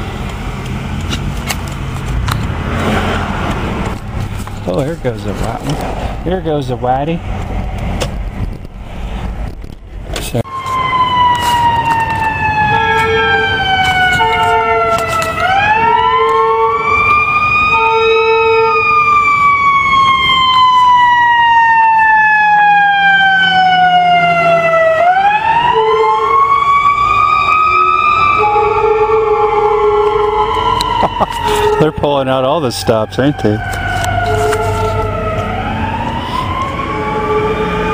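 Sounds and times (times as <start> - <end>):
siren wailing: 10.4 - 37.9
horn blasts: 12.6 - 17.0, 17.7 - 18.9, 27.7 - 32.2.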